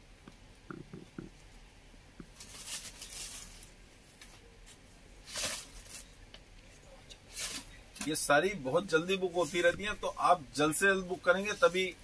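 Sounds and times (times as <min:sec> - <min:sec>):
fabric rustling: 0:02.3 - 0:06.2.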